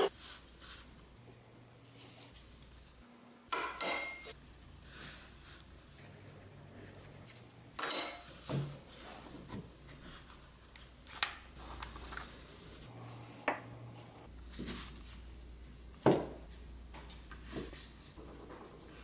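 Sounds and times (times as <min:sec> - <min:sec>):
metal parts clinking: 0:11.1 - 0:12.5.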